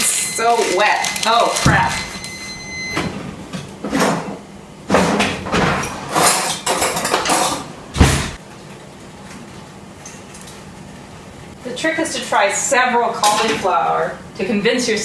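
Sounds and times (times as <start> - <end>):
heavy thump: 8.0 - 8.4.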